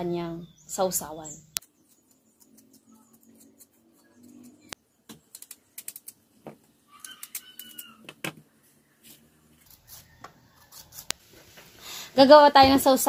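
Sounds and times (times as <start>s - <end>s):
knife scraping mango peel: 1.6s - 4.7s, 9.0s - 11.6s.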